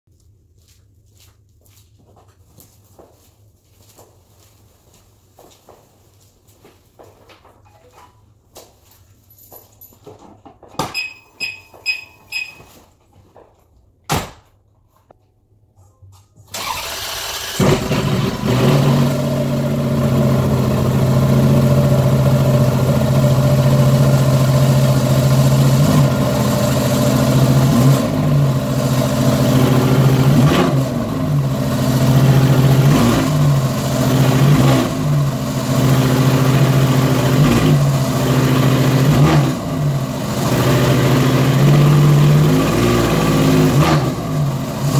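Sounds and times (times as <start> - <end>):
starter motor cranking: 16.5 - 18.5
car engine idling: 16.6 - 44.9.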